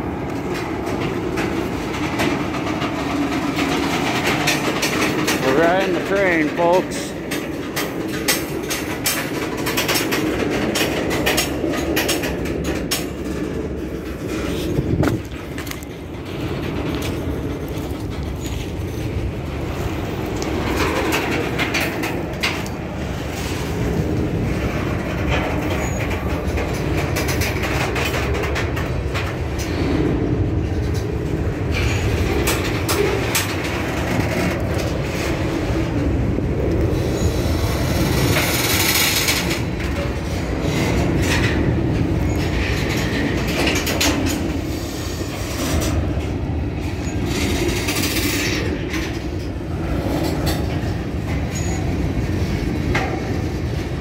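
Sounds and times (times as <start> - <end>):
train wheels rumbling on rails: 0.0 - 54.0
wheels clicking over rail joints: 0.0 - 54.0
high wheel squeals: 51.5 - 52.0.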